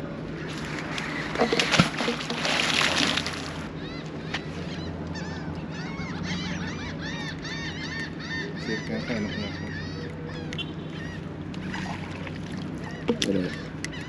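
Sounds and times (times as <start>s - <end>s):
birds calling: 0.0s - 14.0s
magnet splashing into water: 0.9s - 3.7s.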